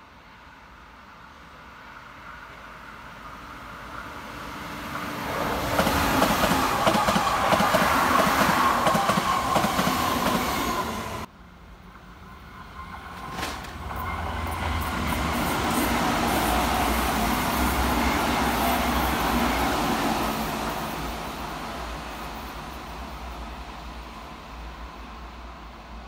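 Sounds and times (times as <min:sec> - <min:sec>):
train whine: 0:00.1 - 0:26.0
train wheels clattering: 0:05.7 - 0:10.6, 0:12.8 - 0:16.7.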